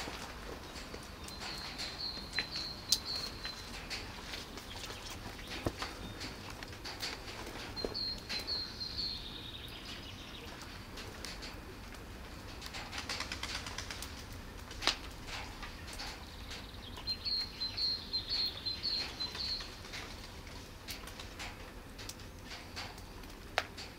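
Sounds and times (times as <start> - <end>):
bird chirping: 0.6 - 6.4, 7.7 - 10.7, 16.3 - 19.8.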